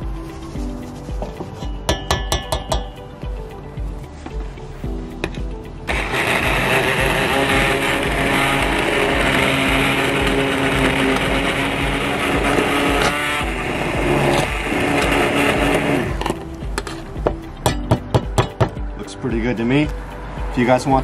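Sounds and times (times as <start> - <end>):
immersion blender whining: 5.9 - 16.4
sharp knocks: 16.8 - 18.9.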